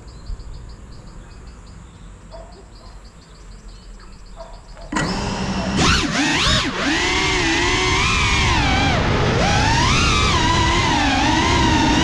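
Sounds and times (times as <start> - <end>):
insects chirping: 0.0 - 5.0.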